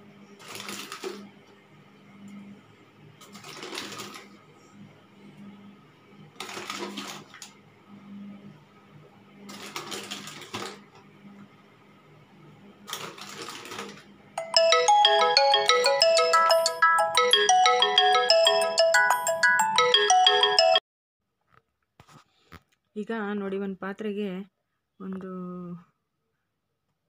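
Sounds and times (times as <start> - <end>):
plinking ringtone tune: 14.4 - 20.8.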